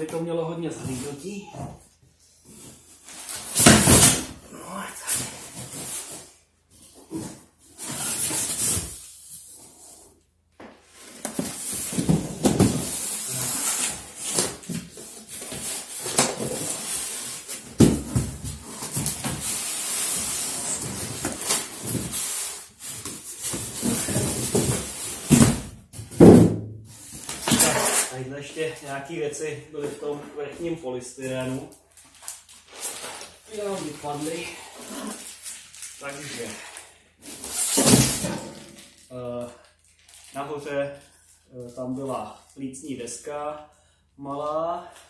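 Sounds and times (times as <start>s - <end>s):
plastic wrap rustling: 10.8s - 25.4s, 31.4s - 41.4s.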